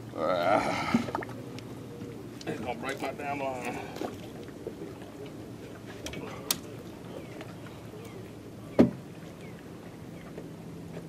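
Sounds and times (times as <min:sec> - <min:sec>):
low steady background noise: 0:00.0 - 0:11.0
knock on aluminum boat hull: 0:08.8 - 0:09.0.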